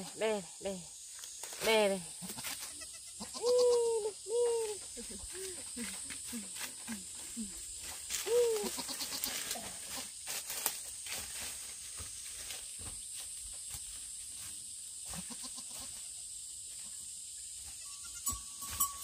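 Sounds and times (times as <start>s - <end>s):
goat bleating: 2.2s - 3.9s, 8.3s - 10.0s, 15.2s - 15.9s.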